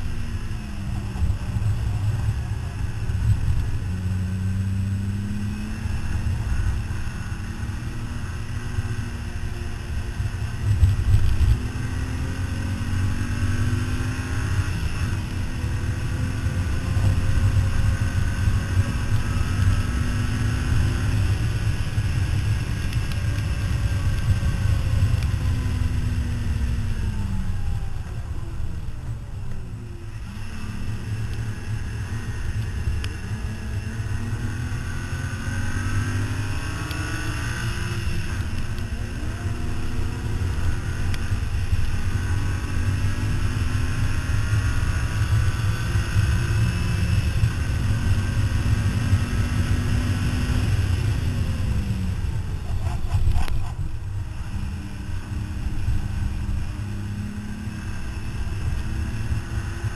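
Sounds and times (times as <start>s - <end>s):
road rumble: 0.0s - 59.9s
wind on microphone: 47.6s - 56.4s.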